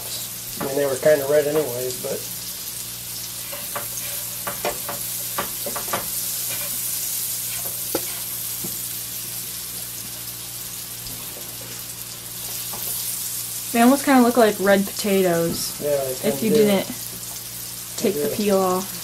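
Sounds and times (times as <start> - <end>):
mushrooms sizzling in a pan: 0.0 - 19.0
spatula scraping and knocking pan: 3.4 - 8.8.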